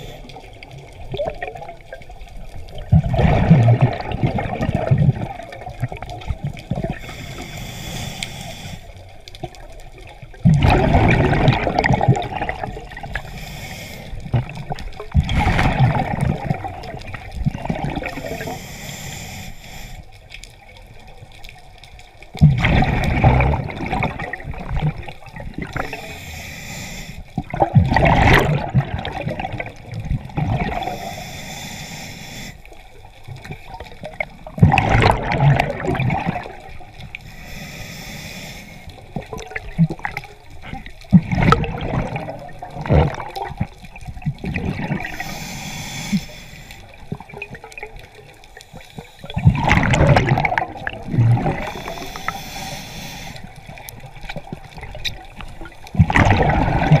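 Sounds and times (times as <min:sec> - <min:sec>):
exhaled bubbles gurgling underwater: 0:00.0 - 0:57.0
regulator inhalation hiss: 0:06.9 - 0:09.0, 0:13.1 - 0:14.2, 0:18.1 - 0:20.2, 0:25.8 - 0:27.3, 0:30.8 - 0:32.7, 0:37.2 - 0:39.0, 0:45.0 - 0:47.0, 0:48.6 - 0:49.4, 0:51.6 - 0:53.5.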